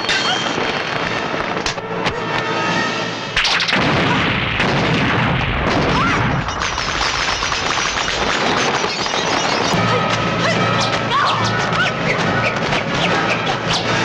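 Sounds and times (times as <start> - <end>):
continuous crashing noise: 0.0 - 2.6, 3.3 - 14.0
explosion blast: 3.4 - 10.0.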